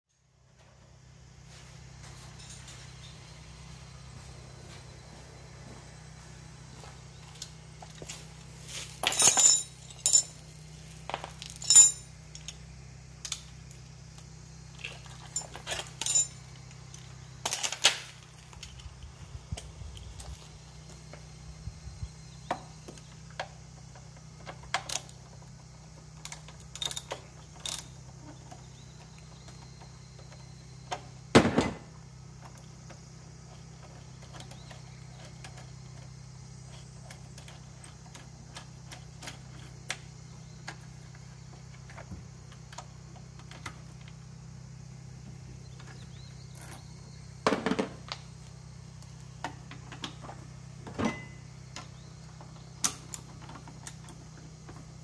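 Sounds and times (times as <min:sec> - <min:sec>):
steady low hum: 0:00.1 - 0:55.0
metal tools clicking and clanking: 0:09.0 - 0:10.5, 0:11.4 - 0:12.6, 0:15.0 - 0:16.4.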